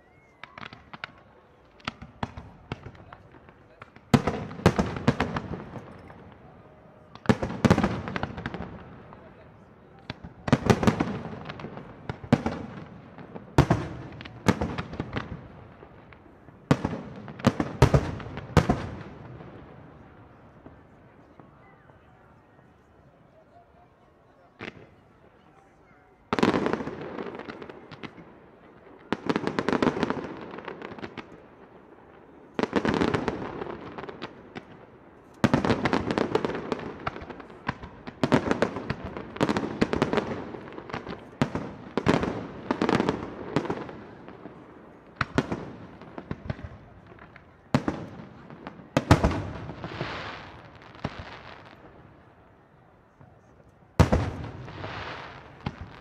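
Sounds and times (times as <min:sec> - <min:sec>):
firework crackle: 0:26.4 - 0:52.3, 0:53.2 - 0:56.0.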